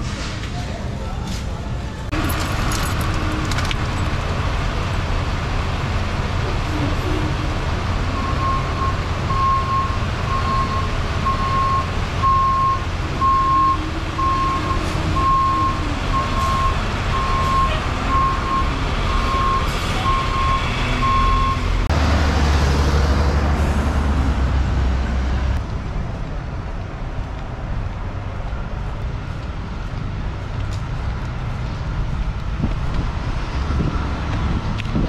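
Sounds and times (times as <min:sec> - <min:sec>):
diesel truck engine running: 0:01.6 - 0:35.0
truck reversing alarm beeping: 0:08.0 - 0:21.8.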